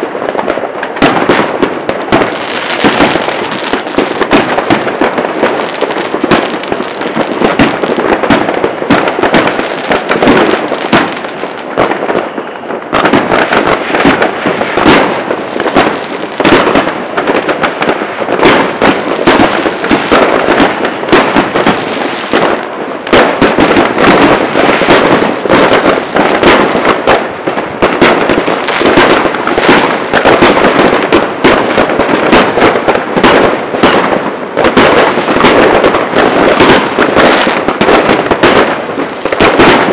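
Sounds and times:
fireworks and firecrackers banging: 0.0 - 39.9.

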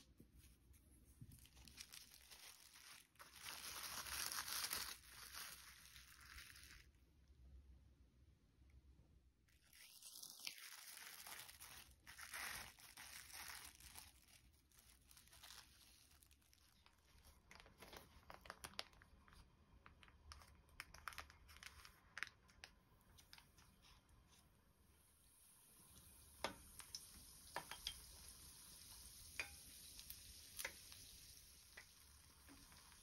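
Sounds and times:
parchment paper crackling: 0.0 - 7.0, 9.5 - 24.6
plastic cling wrap crinkling: 0.0 - 7.0, 9.5 - 24.5, 25.1 - 33.0.

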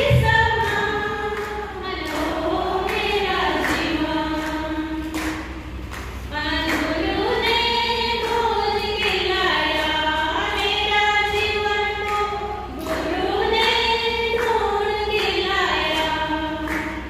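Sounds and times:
woman singing unaccompanied: 6.3 - 16.8.

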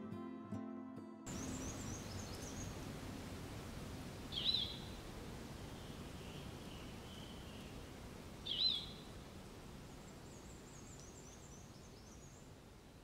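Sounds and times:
faint high bird chirps: 1.3 - 2.9, 4.3 - 5.0, 5.7 - 7.8, 8.4 - 9.1
low steady background noise: 1.3 - 13.0
loud whistled bird call: 4.3 - 4.9, 8.5 - 9.0.

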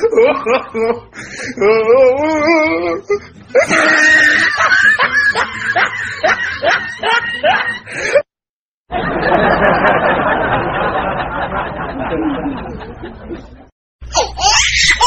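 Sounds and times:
person laughing: 0.0 - 8.3.

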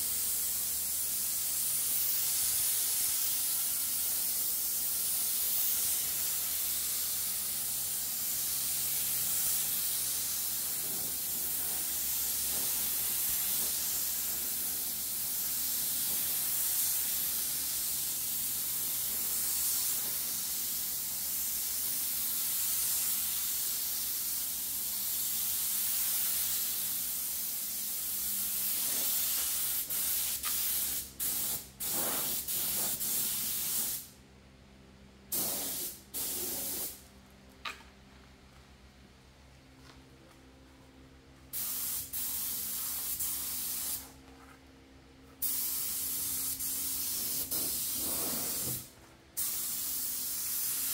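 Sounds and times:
spray gun hissing: 0.0 - 34.1, 35.3 - 37.0, 41.5 - 44.1, 45.4 - 50.9.

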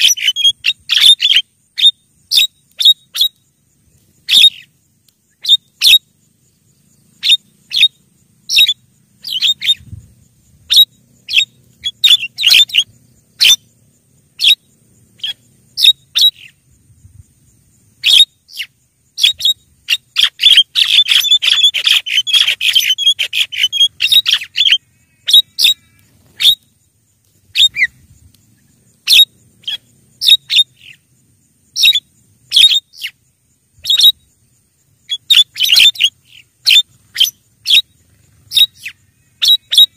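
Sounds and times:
bird rapid chattering: 10.6 - 13.6, 18.0 - 26.6
bird call notes: 18.0 - 26.7.

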